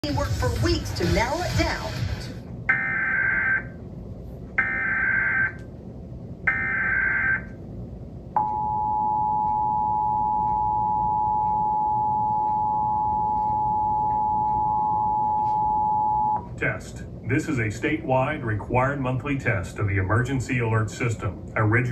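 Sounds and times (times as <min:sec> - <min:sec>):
two-tone attention signal: 0:08.4 - 0:16.5.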